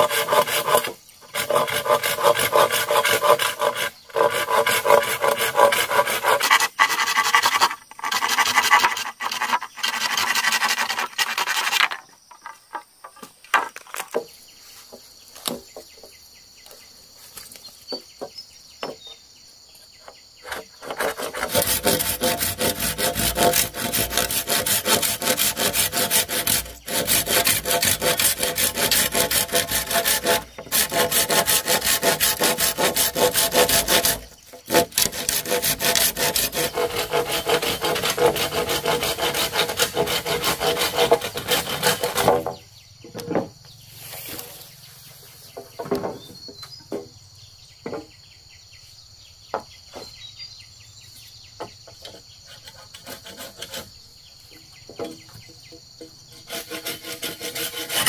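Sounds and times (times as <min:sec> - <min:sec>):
hand saw cutting bamboo: 0:00.0 - 0:12.4, 0:20.4 - 0:42.6, 0:52.0 - 0:53.9, 0:56.3 - 0:58.0.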